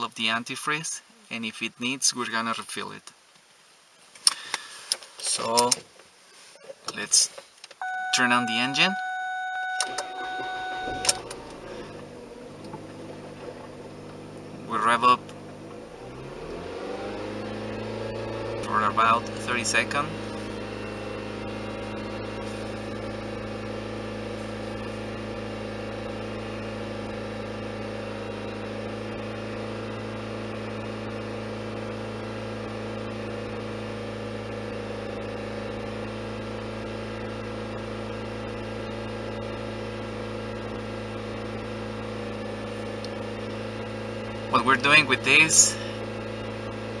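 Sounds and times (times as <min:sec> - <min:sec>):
car engine droning: 0:07.8 - 0:47.0.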